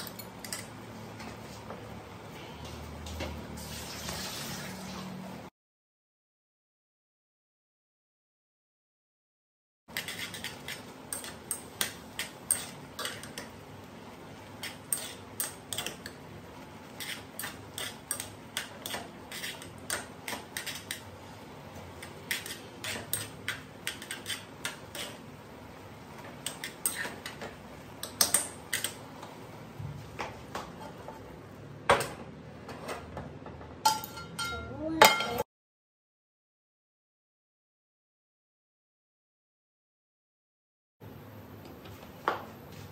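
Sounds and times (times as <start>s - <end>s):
metal chopsticks scraping saucepan: 9.9s - 13.6s, 14.6s - 16.2s, 16.8s - 21.1s, 21.8s - 25.2s, 26.4s - 29.0s.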